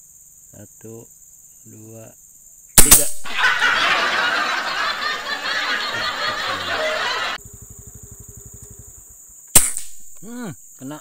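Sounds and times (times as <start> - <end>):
crowd laughing: 3.2 - 7.4.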